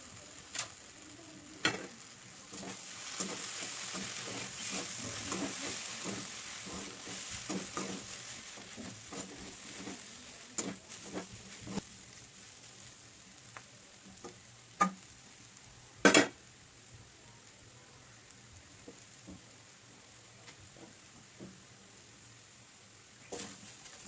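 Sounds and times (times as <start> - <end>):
oil sizzling: 0.0 - 24.0
metal spoon scraping a pan: 1.6 - 11.8.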